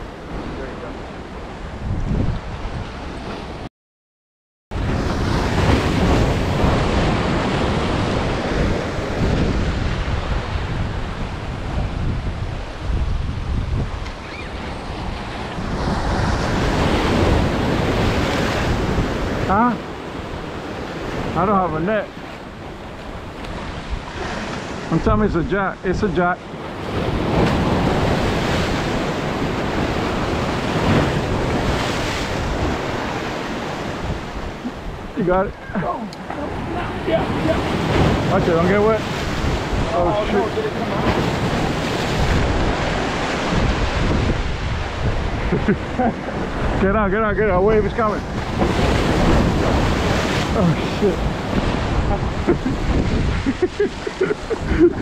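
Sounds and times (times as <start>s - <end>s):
wind buffeting microphone: 0.0s - 3.6s, 4.7s - 55.0s
ocean surf breaking on boulders: 0.0s - 3.7s, 4.8s - 55.0s
surf breaking on rocks: 26.6s - 35.4s, 36.2s - 45.4s, 47.8s - 55.0s.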